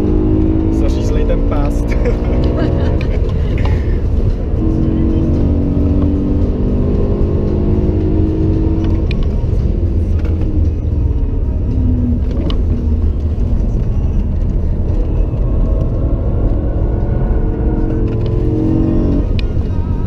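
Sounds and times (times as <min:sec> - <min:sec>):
car engine revving hard: 0:00.0 - 0:09.2
road noise rumble: 0:00.0 - 0:20.0.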